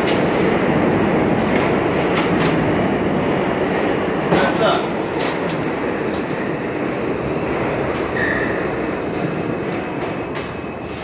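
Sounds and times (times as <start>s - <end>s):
subway train rumble: 0.0s - 11.0s
high wheel squeal: 8.0s - 9.4s.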